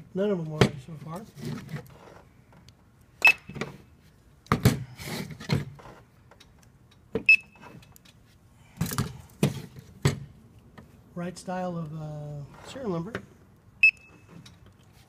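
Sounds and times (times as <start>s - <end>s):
barcode scanner beeping: 3.2s - 3.6s, 7.3s - 7.6s, 13.8s - 14.2s.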